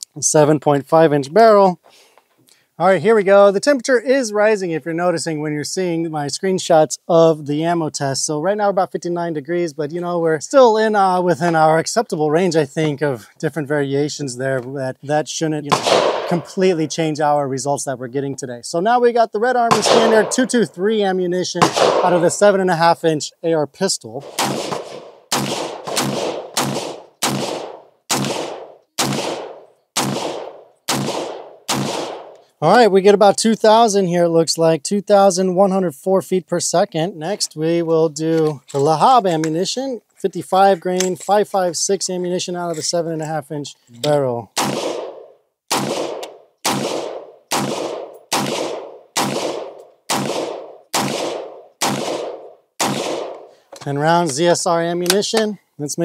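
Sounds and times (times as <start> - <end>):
semi-automatic gunshots with echo: 15.7 - 16.7, 19.7 - 20.6, 21.6 - 22.5, 24.2 - 32.3, 44.6 - 53.5.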